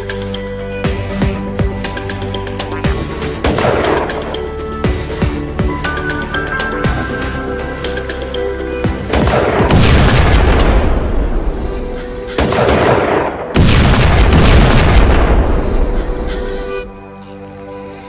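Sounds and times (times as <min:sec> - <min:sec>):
background music: 0:00.0 - 0:18.0
explosion booms with rumble: 0:09.2 - 0:11.6, 0:12.4 - 0:16.2.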